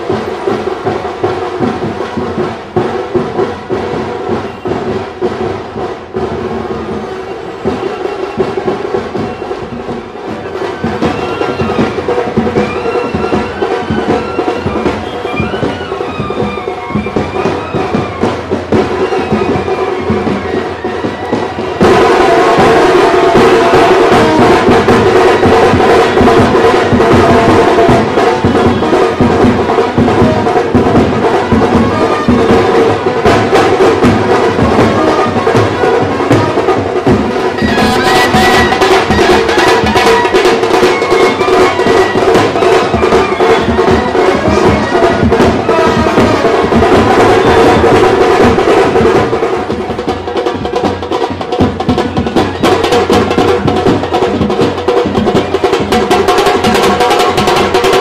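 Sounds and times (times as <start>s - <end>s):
loud busy drumming: 0.0s - 58.0s
held horn tones: 34.6s - 48.8s.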